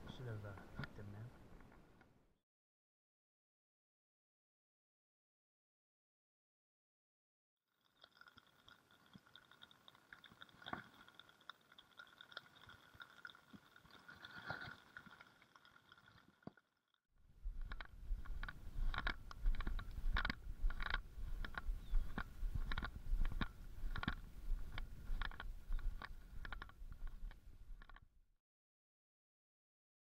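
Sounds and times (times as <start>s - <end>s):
wind buffeting microphone: 17.4s - 27.8s.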